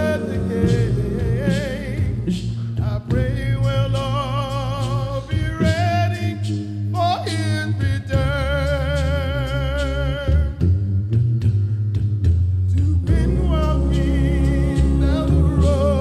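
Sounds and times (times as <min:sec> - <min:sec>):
solo voice singing gospel: 0:00.0 - 0:10.8, 0:12.7 - 0:16.0
low accompaniment: 0:00.0 - 0:16.0.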